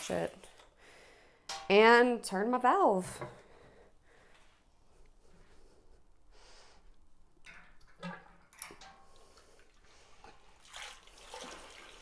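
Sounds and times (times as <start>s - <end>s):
liquid splashing: 10.5s - 12.0s.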